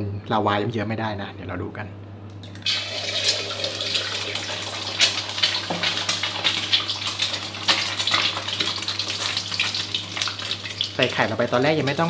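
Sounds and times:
egg sizzling in hot oil: 0:02.6 - 0:12.0
oil popping and crackling: 0:02.6 - 0:12.0.

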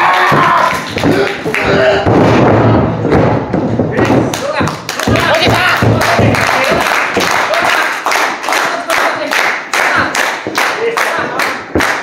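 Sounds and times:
hands clapping in rhythm: 0:00.0 - 0:01.8, 0:04.0 - 0:12.0
spectators cheering: 0:00.0 - 0:02.0.

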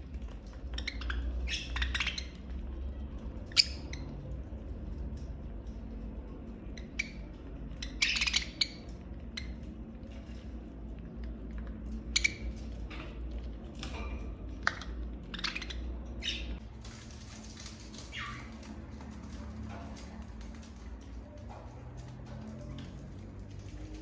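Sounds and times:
budgerigars chirping: 0:00.6 - 0:02.5, 0:03.5 - 0:04.1, 0:06.8 - 0:09.6, 0:12.1 - 0:12.7, 0:14.6 - 0:16.6, 0:18.1 - 0:18.5.

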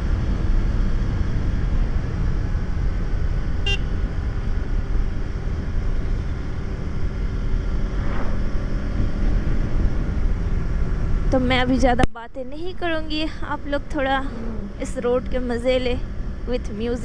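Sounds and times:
motorcycle road and wind noise: 0:00.0 - 0:17.0
vehicle horn toot: 0:03.6 - 0:04.0.

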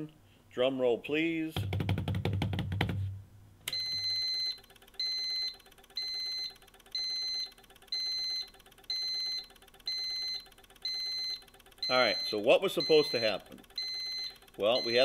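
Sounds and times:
electronic alarm horn beeping: 0:03.8 - 0:15.0.

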